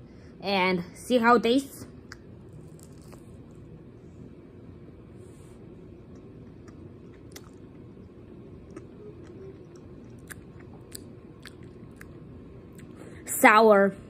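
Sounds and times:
low room hum: 0.0 - 14.0
person chewing gummy candy: 2.1 - 3.5, 6.0 - 13.0.

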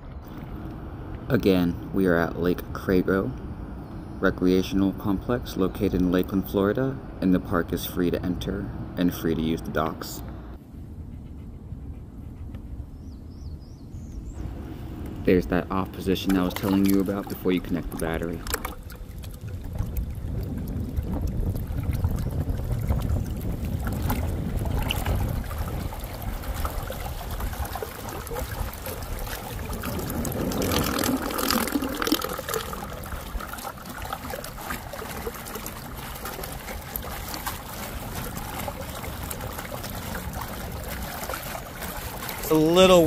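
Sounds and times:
water churning and trickling: 0.0 - 10.3, 13.0 - 43.0
water washing along hull: 13.3 - 43.0
water gurgle: 15.2 - 43.0.

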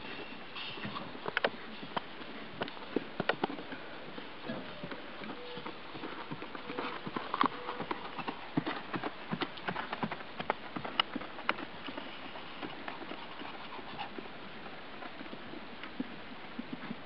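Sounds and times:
horse hoofbeats on grass: 0.0 - 17.0.

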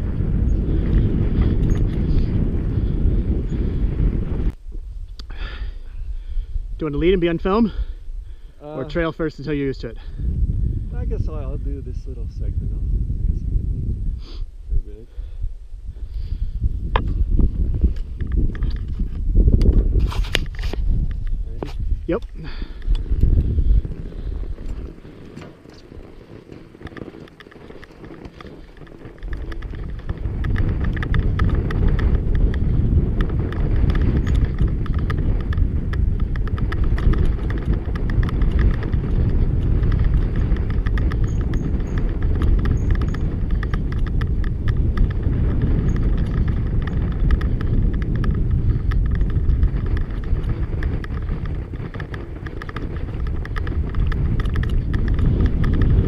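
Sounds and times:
tyres rumbling over snow: 0.0 - 4.6, 16.0 - 56.0
wind buffeting microphone: 0.0 - 56.0
crunching clicks: 22.1 - 56.0.

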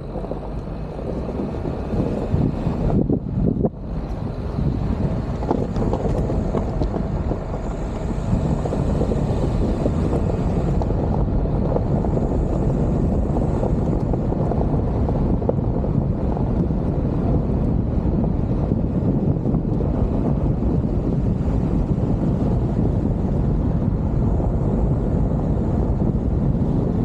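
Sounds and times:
tyres rumbling on gravel road: 0.0 - 27.0
wind buffeting microphone: 0.0 - 27.0.

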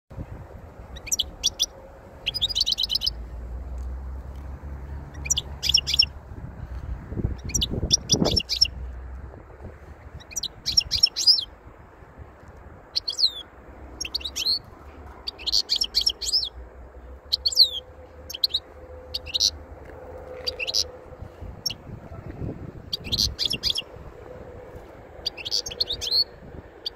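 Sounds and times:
finch singing high twittering: 1.0 - 3.2, 5.2 - 6.1, 7.4 - 8.8, 10.2 - 11.5, 13.0 - 16.6, 17.3 - 19.6, 20.4 - 20.9, 22.9 - 23.9, 25.2 - 26.9.

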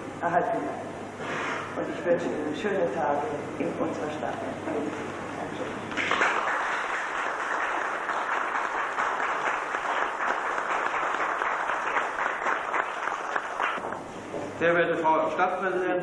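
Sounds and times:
audience applauding: 5.9 - 13.9.

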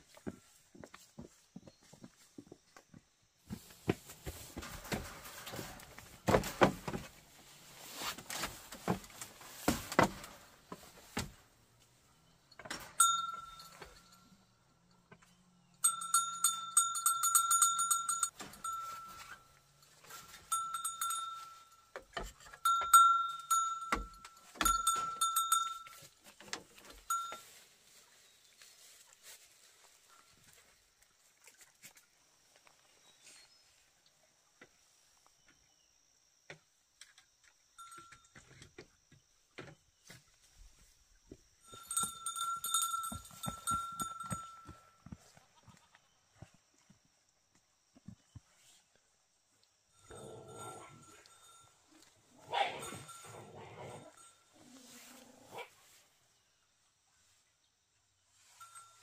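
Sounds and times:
knocks and handling noises: 2.8 - 7.4, 8.0 - 11.5.

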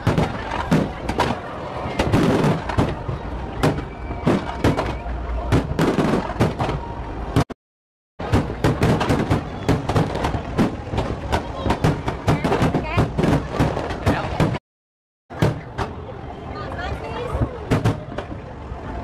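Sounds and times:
fireworks bursting: 0.0 - 6.8, 8.2 - 14.6.

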